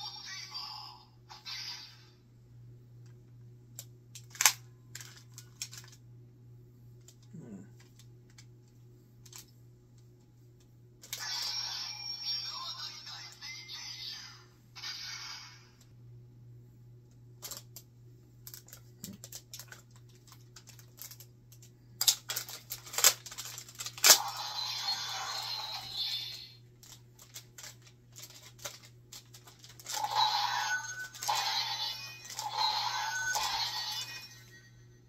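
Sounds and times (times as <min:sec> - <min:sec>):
plastic toy clicks and rattles: 0:04.2 - 0:06.0, 0:17.4 - 0:17.8, 0:18.5 - 0:24.4, 0:25.2 - 0:30.3, 0:32.2 - 0:34.1
toy electronic sound effects: 0:14.8 - 0:15.7, 0:24.2 - 0:26.6, 0:29.9 - 0:34.5.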